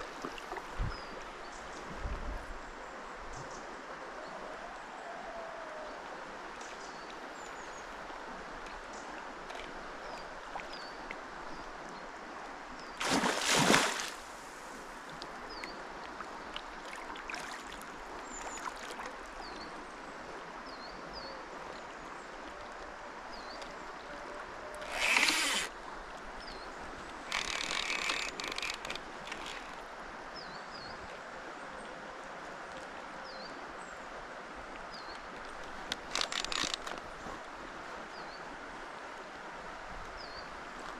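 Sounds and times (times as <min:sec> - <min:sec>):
river water running: 0:00.0 - 0:40.9.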